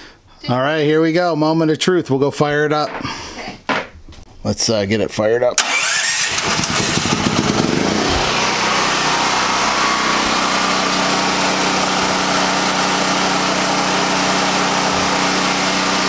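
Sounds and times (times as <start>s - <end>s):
portable generator engine running: 5.6s - 16.0s.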